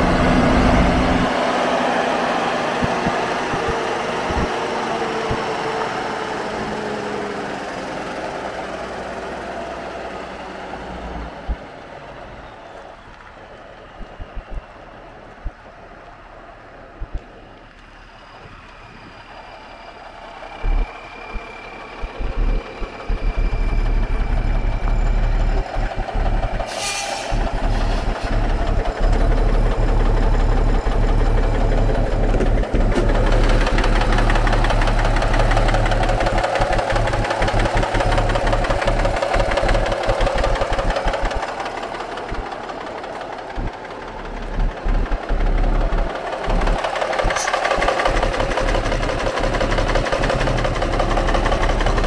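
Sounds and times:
diesel truck engine idling: 0:00.0 - 0:52.0
brief hiss: 0:26.7 - 0:28.1.

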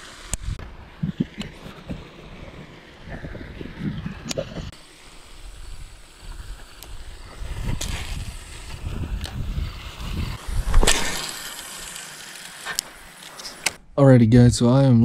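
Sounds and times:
wind rumbling on microphone: 0:00.2 - 0:11.2.

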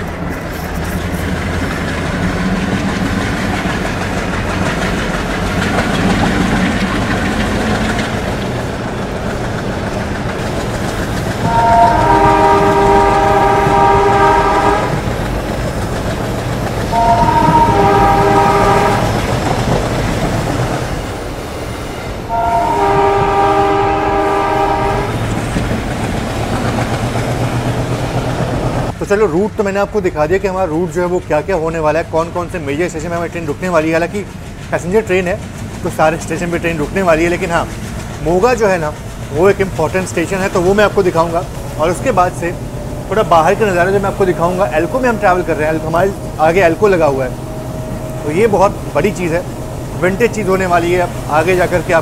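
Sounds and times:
diesel train running on track: 0:00.0 - 0:52.0
locomotive horn blasts: 0:11.4 - 0:15.1, 0:16.9 - 0:19.2, 0:22.3 - 0:25.2.

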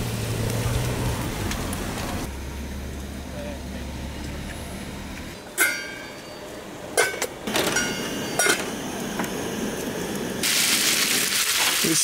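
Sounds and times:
metal utensils clanking on pot: 0:05.6 - 0:06.4, 0:07.0 - 0:08.7.

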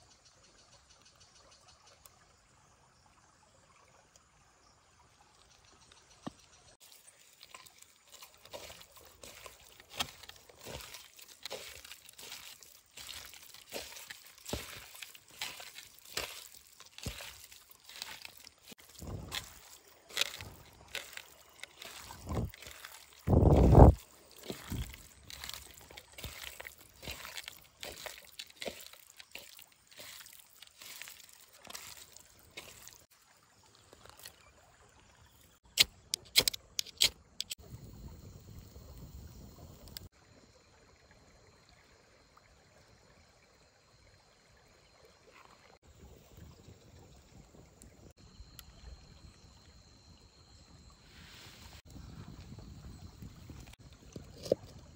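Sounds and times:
water pouring and sloshing: 0:01.6 - 0:54.9.

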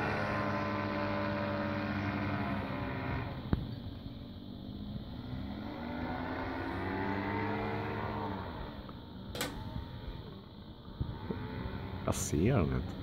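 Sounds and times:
paramotor engine buzzing: 0:00.0 - 0:13.0
sharp click: 0:09.3 - 0:09.7.

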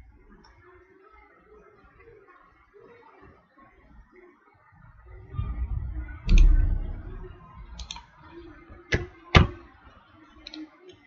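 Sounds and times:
low thump: 0:05.1 - 0:08.0.

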